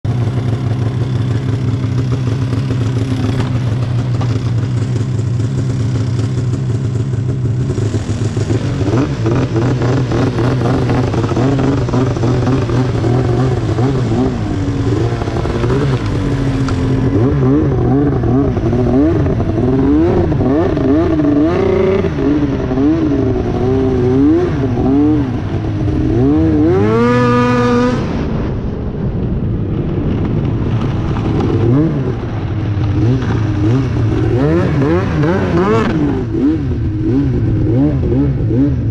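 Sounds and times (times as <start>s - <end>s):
snowmobile engine revving: 0.1s - 28.4s, 30.8s - 38.9s.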